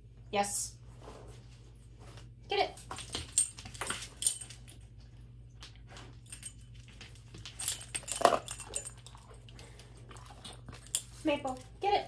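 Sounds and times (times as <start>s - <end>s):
dog collar tags jingling: 3.0s - 4.9s, 6.1s - 9.6s, 10.4s - 11.8s.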